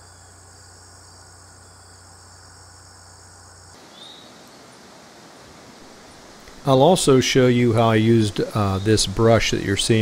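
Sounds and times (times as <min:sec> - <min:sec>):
chorus of insects: 0:00.0 - 0:10.0
faint open-air hiss: 0:00.0 - 0:10.0.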